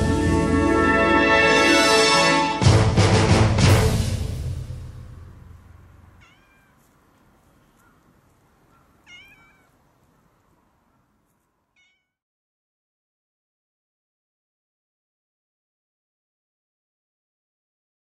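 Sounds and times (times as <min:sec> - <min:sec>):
background music: 0:00.0 - 0:05.6
cat meowing: 0:06.2 - 0:06.9, 0:08.7 - 0:09.8, 0:11.7 - 0:12.2.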